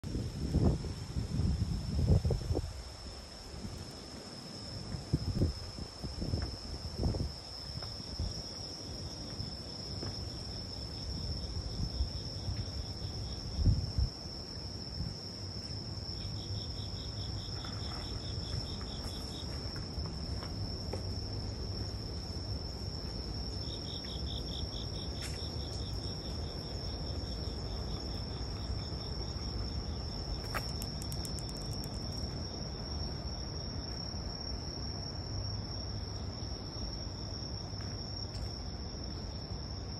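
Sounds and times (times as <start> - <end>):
insect pulsed chirping: 21.9 - 32.8.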